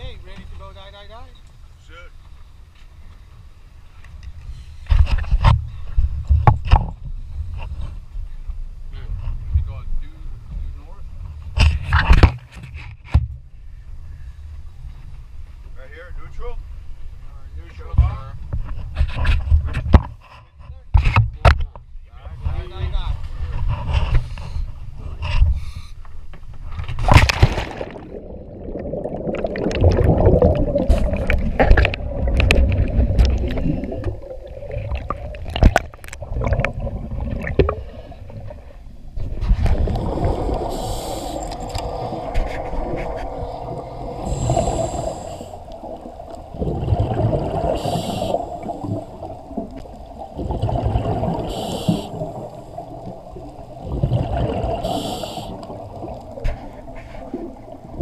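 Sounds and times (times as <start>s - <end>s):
diver splashing into water: 27.0s - 37.9s
churning water: 27.0s - 58.0s
exhaled bubbles hissing: 27.3s - 58.0s
regulator breathing underwater: 39.7s - 57.4s.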